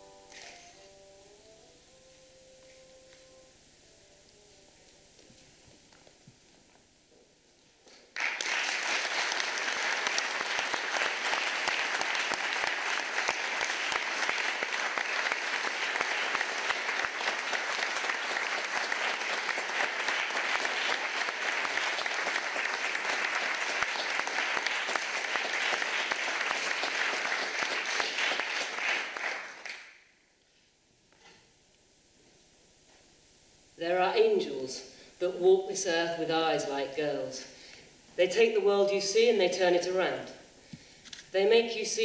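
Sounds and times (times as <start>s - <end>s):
audience applauding: 8.1s - 30.0s.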